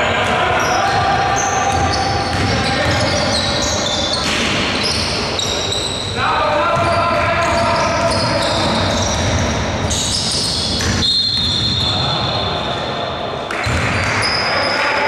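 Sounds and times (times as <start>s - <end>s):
noisy hall background: 0.0s - 15.0s
basketball bouncing: 0.2s - 3.3s, 6.8s - 11.9s, 13.5s - 14.3s.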